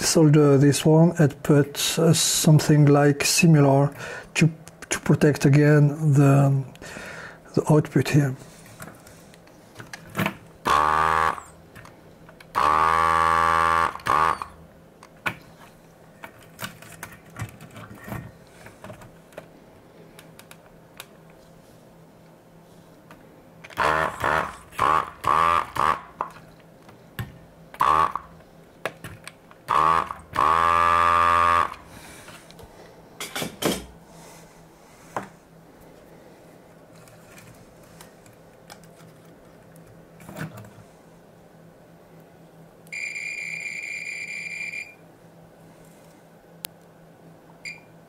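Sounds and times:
vacuum pump buzzing: 0:10.6 - 0:11.6, 0:12.5 - 0:14.7, 0:23.6 - 0:26.4, 0:27.7 - 0:28.4, 0:29.6 - 0:32.3.

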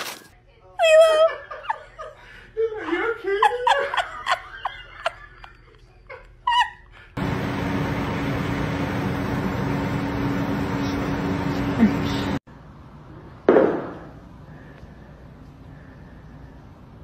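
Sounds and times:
man laughing: 0:01.3 - 0:06.9
floor fan running: 0:07.2 - 0:13.5.

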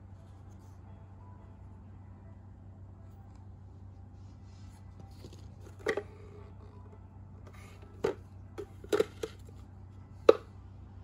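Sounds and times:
low steady hum: 0:00.0 - 0:11.0
plastic parts knocking together: 0:08.0 - 0:09.5.

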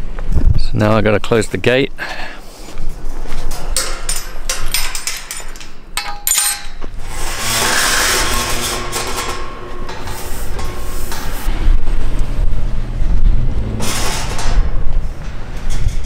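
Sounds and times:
metal gate knocking and rattling: 0:03.4 - 0:12.5, 0:13.6 - 0:16.0
metal gate clanging: 0:03.4 - 0:12.6, 0:13.6 - 0:16.0
broad rushing noise: 0:07.0 - 0:16.0.

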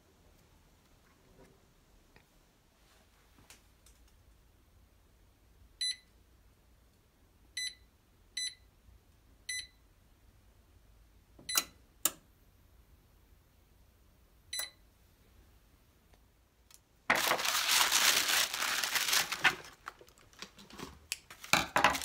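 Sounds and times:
oven control panel beeps: 0:05.8 - 0:06.1, 0:07.6 - 0:07.8, 0:08.4 - 0:08.6, 0:09.5 - 0:09.8, 0:11.4 - 0:11.8, 0:14.5 - 0:14.8.

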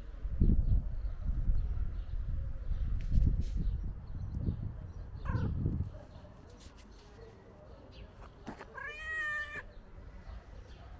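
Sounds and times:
cat meowing: 0:08.7 - 0:09.7.

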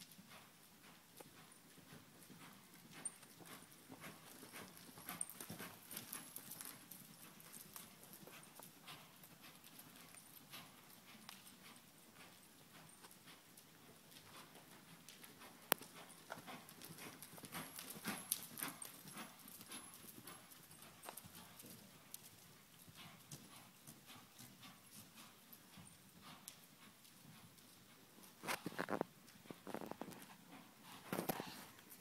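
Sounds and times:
horse hoofbeats on soft dirt: 0:00.0 - 0:32.0.

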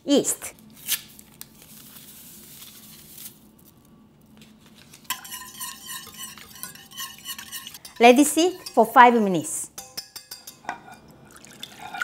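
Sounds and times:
whisk clinking in metal saucepan: 0:05.1 - 0:12.0.

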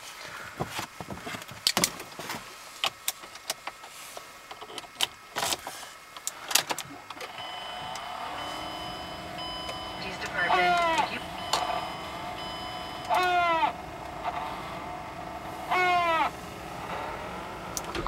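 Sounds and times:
hum of held tones: 0:07.2 - 0:18.0.

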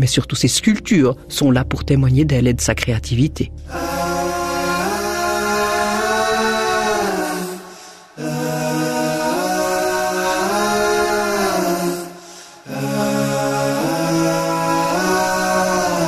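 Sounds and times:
a cappella chant-like singing: 0:03.6 - 0:16.0.

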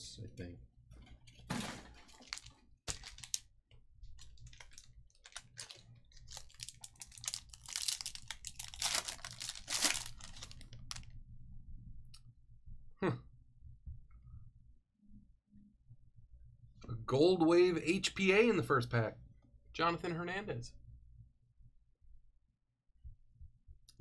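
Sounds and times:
foil wrapper crinkling and tearing: 0:02.1 - 0:03.5, 0:04.2 - 0:11.1.

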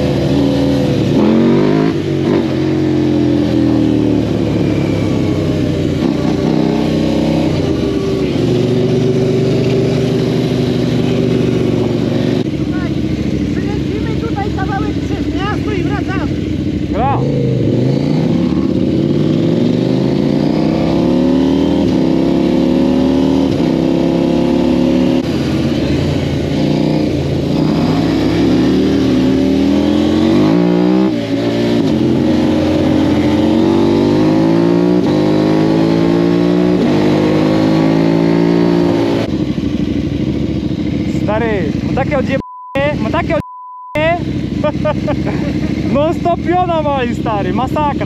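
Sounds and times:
engine accelerating through gears: 0:16.9 - 0:39.4.

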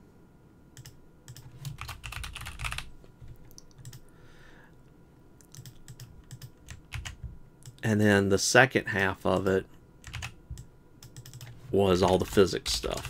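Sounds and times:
computer keyboard typing: 0:00.8 - 0:02.9, 0:03.5 - 0:04.0, 0:05.5 - 0:07.8, 0:09.4 - 0:13.0.

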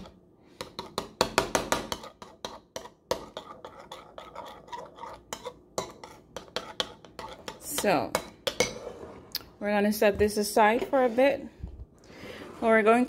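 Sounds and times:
spoon scraping and clinking bowl: 0:01.8 - 0:09.1.

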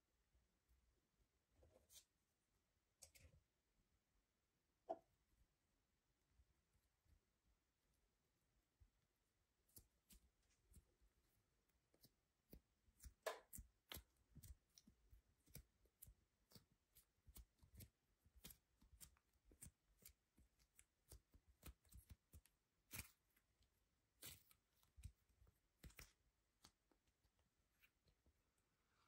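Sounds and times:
modelling dough clicking and crackling: 0:09.5 - 0:29.0.

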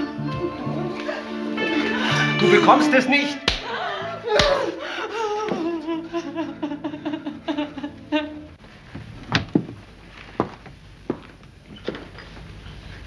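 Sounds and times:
woman sobbing cries: 0:00.4 - 0:08.6
footsteps on wooden floor: 0:08.6 - 0:12.6.

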